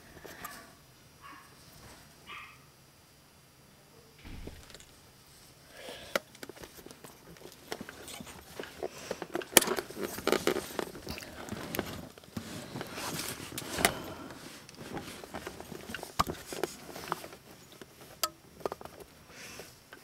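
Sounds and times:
rustling and shuffling: 0:01.3 - 0:02.2, 0:06.4 - 0:19.9.

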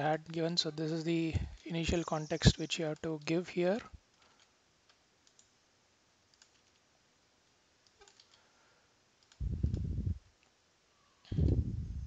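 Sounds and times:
computer mouse clicks: 0:04.1 - 0:05.6, 0:06.3 - 0:06.8, 0:07.8 - 0:08.4, 0:09.2 - 0:09.8
low muffled rumble: 0:09.4 - 0:10.2, 0:11.3 - 0:12.0.

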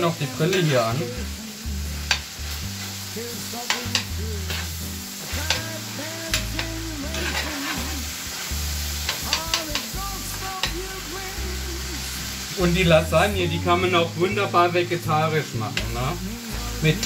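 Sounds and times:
mince sizzling in a pan: 0:00.0 - 0:17.0
spoons clicking against pan: 0:03.6 - 0:04.6, 0:06.3 - 0:07.4, 0:09.0 - 0:09.9.

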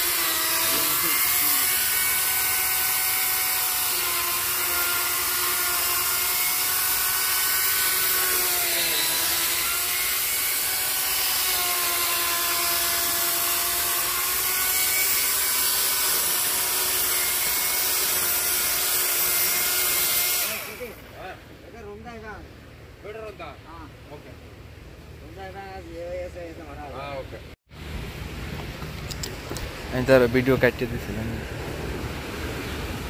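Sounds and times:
electric chainsaw cutting wood: 0:00.0 - 0:21.0.

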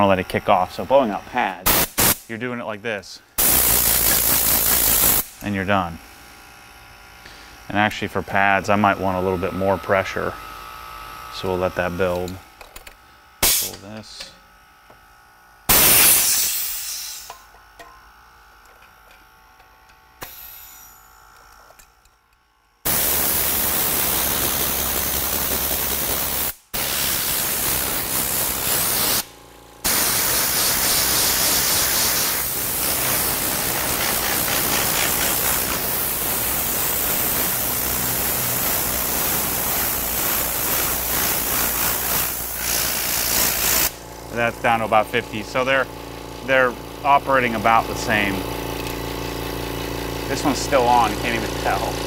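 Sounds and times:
compressed air hissing from blow gun: 0:03.4 - 0:05.4, 0:15.7 - 0:17.4, 0:22.9 - 0:29.2, 0:29.9 - 0:43.9
faint hum: 0:05.3 - 0:15.7.

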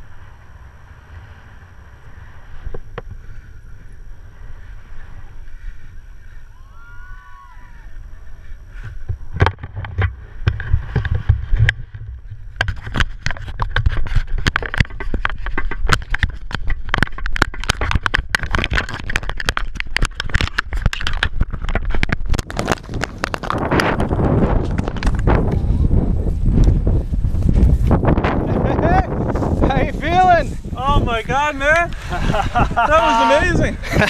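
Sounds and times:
low rumble: 0:00.0 - 0:14.4.

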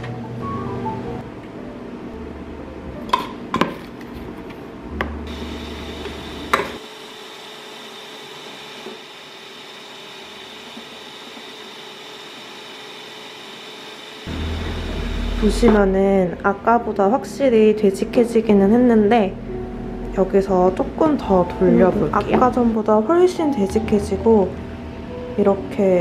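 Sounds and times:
electric hand mixer whining: 0:05.3 - 0:15.7.

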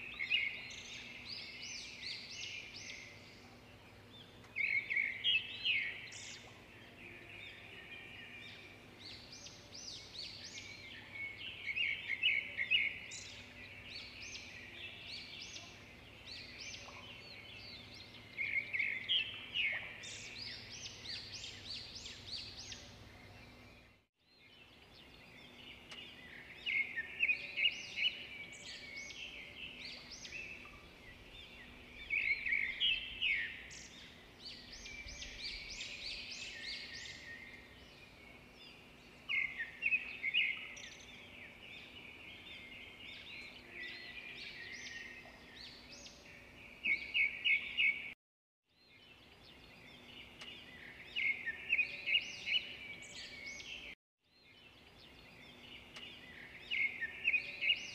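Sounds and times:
small birds chirping: 0:00.0 - 0:57.9.

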